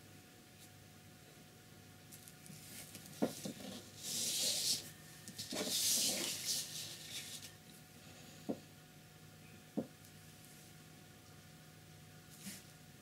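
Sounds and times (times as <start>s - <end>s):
paper sliding and rustling: 2.6s - 7.6s.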